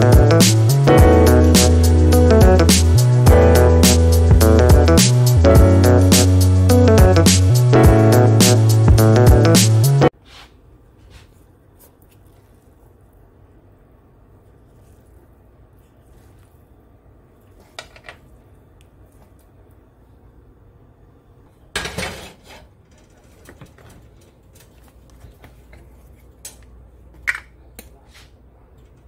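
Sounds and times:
pans and utensils clinking: 0:21.7 - 0:24.0
metal pan clattering on stove: 0:21.8 - 0:23.6.

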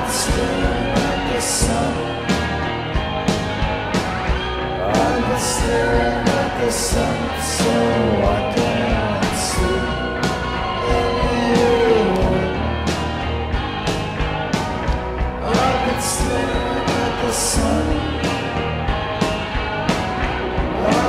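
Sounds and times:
person singing: 0:00.0 - 0:02.6, 0:04.7 - 0:13.0, 0:15.4 - 0:18.5, 0:20.7 - 0:21.0
guitar: 0:00.0 - 0:21.0
steady drum beat: 0:00.0 - 0:21.0.

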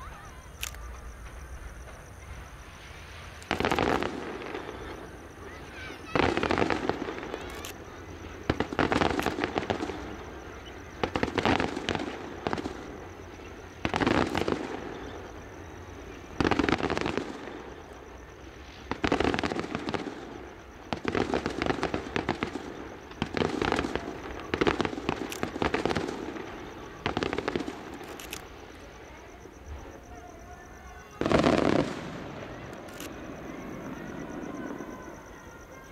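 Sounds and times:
crackling firework tails: 0:00.0 - 0:35.9
firework shells bursting: 0:00.1 - 0:18.0, 0:18.6 - 0:28.9.

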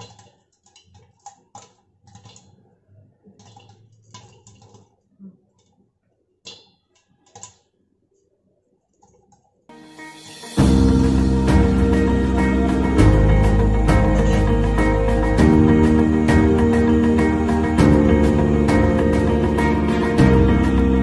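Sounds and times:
popcorn popping in a pan: 0:00.0 - 0:05.8, 0:06.4 - 0:07.8.

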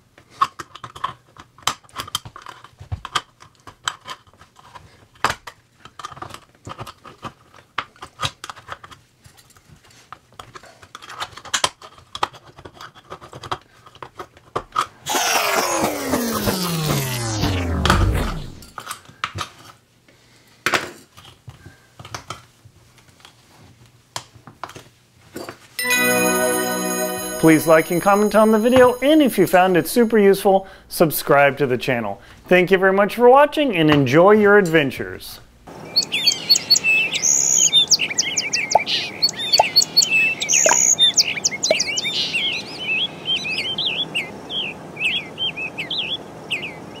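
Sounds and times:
birds chirping: 0:35.7 - 0:47.0.

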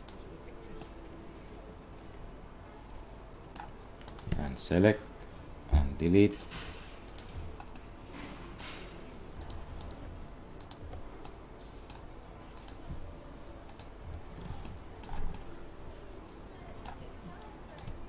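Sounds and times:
faint steady background noise: 0:00.0 - 0:18.0
mouse and keyboard clicks: 0:03.5 - 0:04.4, 0:09.4 - 0:10.0, 0:10.6 - 0:12.8, 0:13.6 - 0:13.9.

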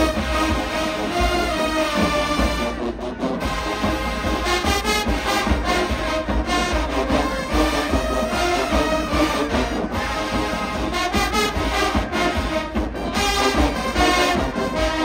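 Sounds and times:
marching band brass: 0:00.0 - 0:15.0.

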